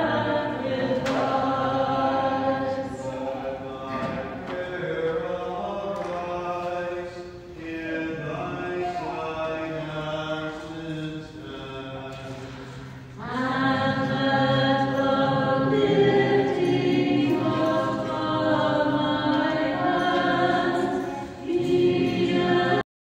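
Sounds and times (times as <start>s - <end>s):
church choir chanting: 0.0s - 22.8s.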